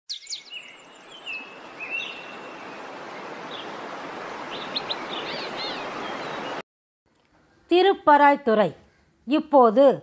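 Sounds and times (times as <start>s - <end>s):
birds chirping: 0.1s - 6.6s
waterfall rushing: 1.1s - 6.6s.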